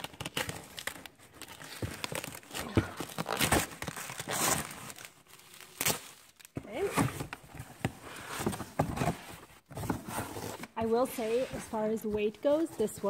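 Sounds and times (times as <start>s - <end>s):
packing tape tearing: 0.0s - 6.9s
plastic and tinsel rustling: 10.1s - 13.0s.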